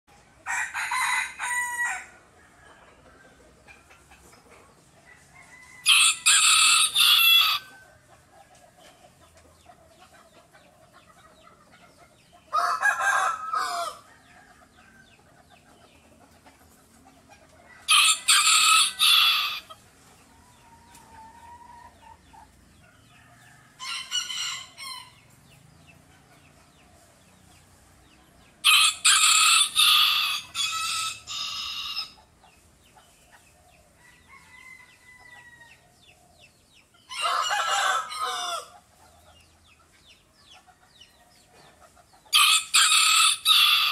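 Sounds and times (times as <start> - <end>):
rooster crowing: 0.4 - 2.9, 5.1 - 7.8, 12.5 - 15.0, 17.8 - 19.7, 28.6 - 32.2, 34.0 - 35.8, 37.1 - 38.8, 42.3 - 43.9.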